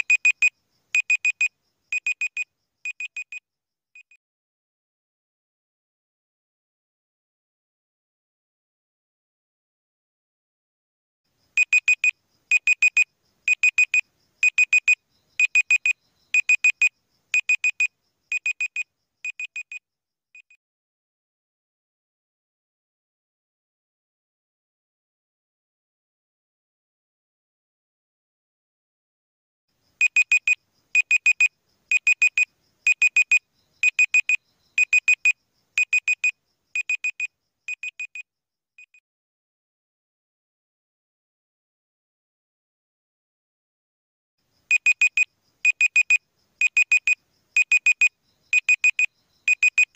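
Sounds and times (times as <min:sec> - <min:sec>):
digital timer alarm beeping: 0:00.0 - 0:03.4, 0:11.6 - 0:19.8, 0:30.0 - 0:38.2, 0:38.8 - 0:39.0, 0:44.7 - 0:49.9.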